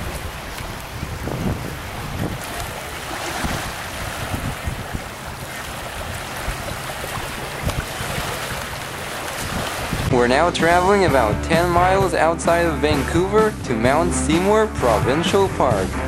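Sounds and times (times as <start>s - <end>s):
wind buffeting microphone: 0.0s - 10.2s.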